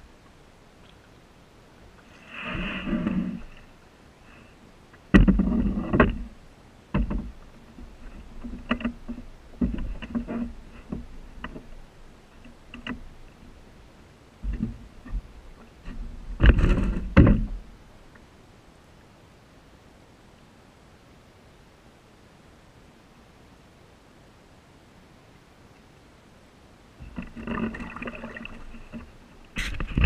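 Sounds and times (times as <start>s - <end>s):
hollow knocks on canoe hull: 5.1s - 6.3s, 6.9s - 11.7s, 16.4s - 17.6s.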